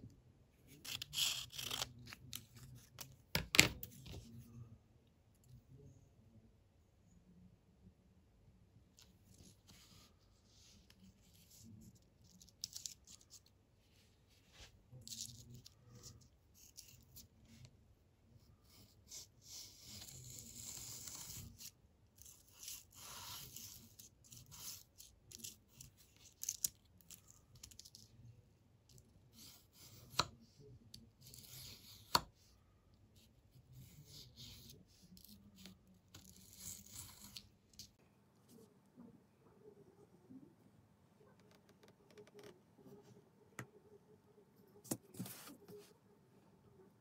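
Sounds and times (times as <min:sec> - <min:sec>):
steel tip scraping abrasive paper: 0:00.8 - 0:02.2.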